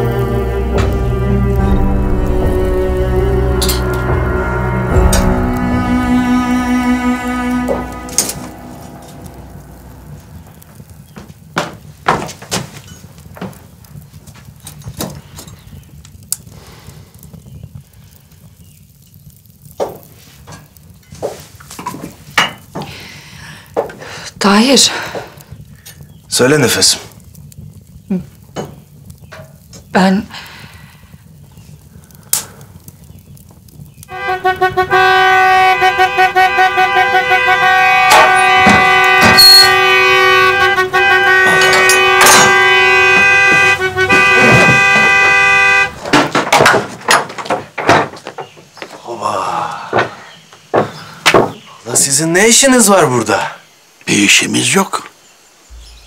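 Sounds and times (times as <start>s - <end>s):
loud pulsing held chord: 0.0s - 11.1s, 34.1s - 46.0s
footsteps on wooden floorboards: 11.1s - 13.6s, 21.2s - 22.9s, 23.8s - 24.0s, 43.0s - 45.4s, 46.0s - 49.0s, 49.9s - 51.6s.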